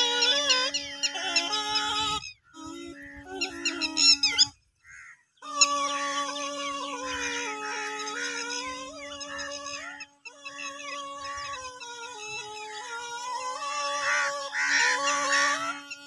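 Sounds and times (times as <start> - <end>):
nasal reed melody over drone: 0.0 - 16.0.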